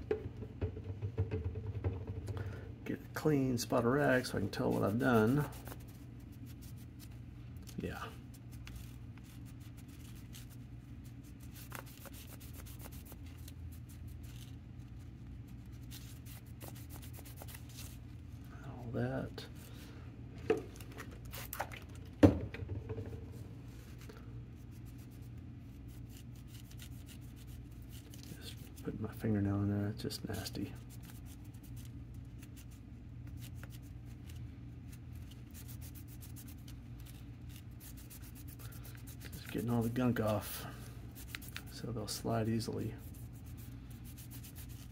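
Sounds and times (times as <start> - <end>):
steady low hum: 0.0 - 44.9
cloth rag rubbing plastic parts: 3.2 - 18.2, 30.1 - 44.9
cloth rubbing on plastic: 7.8 - 18.2
faint ticks and scuffs: 30.2 - 44.9.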